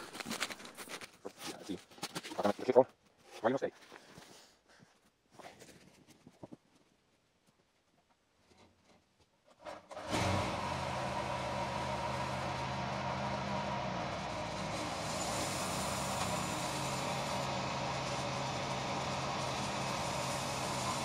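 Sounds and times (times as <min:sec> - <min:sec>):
bandsaw mill sawing log: 0:09.6 - 0:21.0.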